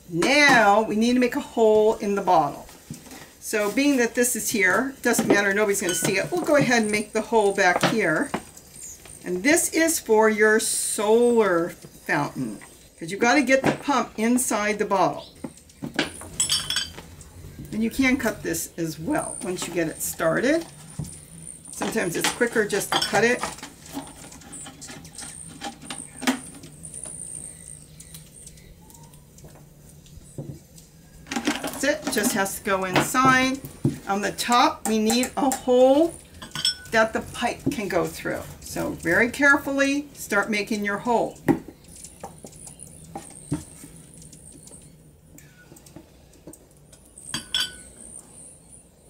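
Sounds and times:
soldering iron clinking on ceramic: 5.2s - 7.0s, 34.8s - 37.0s, 47.3s - 47.9s.

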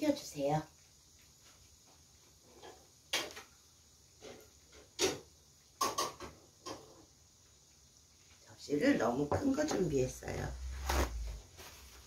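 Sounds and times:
hot oil popping: 0.7s - 8.5s.

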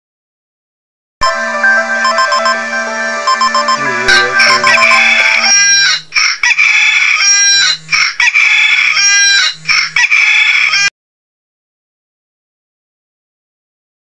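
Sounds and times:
rooster crowing ringtone: 1.2s - 10.9s.

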